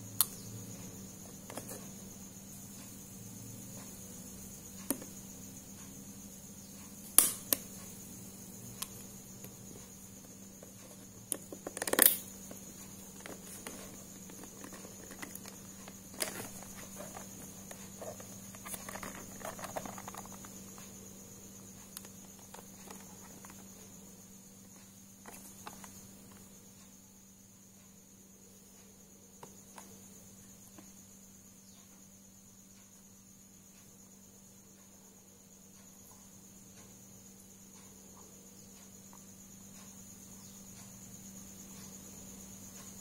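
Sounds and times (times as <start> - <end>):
plastic case clicks and snaps: 7.2 - 7.6, 11.3 - 12.3
plastic rattling and rustling: 10.6 - 20.9, 22.0 - 23.7, 25.2 - 26.4.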